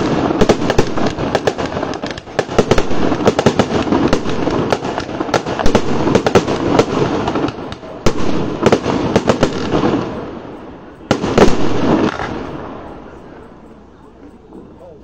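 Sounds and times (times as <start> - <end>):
fireworks bursting with bangs: 0.0 - 14.8.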